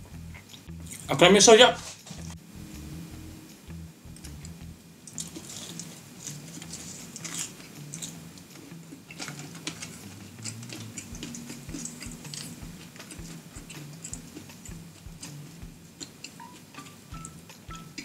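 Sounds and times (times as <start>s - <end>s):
chewing french fries: 5.1s - 18.0s.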